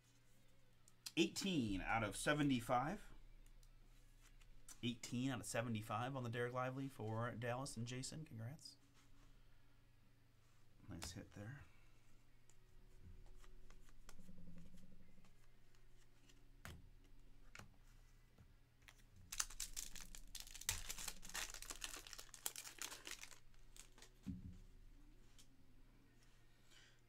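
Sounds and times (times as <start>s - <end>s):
foil pack crackling: 19.3s - 24.1s.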